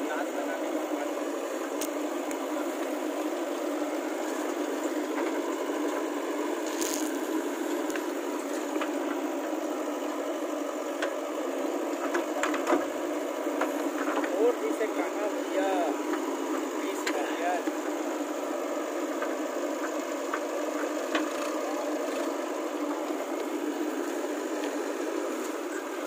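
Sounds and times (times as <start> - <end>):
diesel engine under load: 0.0 - 26.0
bucket scraping dry earth: 6.5 - 8.6.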